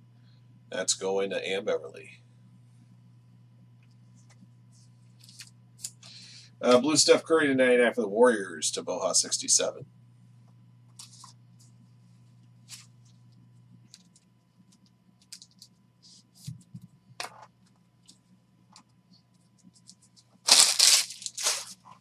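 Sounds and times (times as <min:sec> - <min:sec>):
cards and plastic sleeves rustling: 0:05.1 - 0:06.1, 0:11.0 - 0:11.4, 0:13.9 - 0:18.2, 0:18.8 - 0:22.0.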